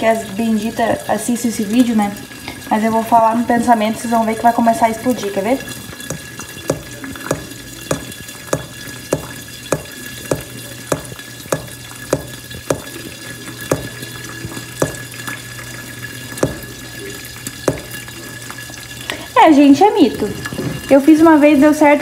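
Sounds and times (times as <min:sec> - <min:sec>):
gas hob hissing and humming: 0:00.0 - 0:22.0
fingertip tapping on glass lid: 0:06.1 - 0:13.0, 0:13.7 - 0:14.0, 0:14.8 - 0:15.2, 0:16.4 - 0:16.7, 0:17.7 - 0:18.0.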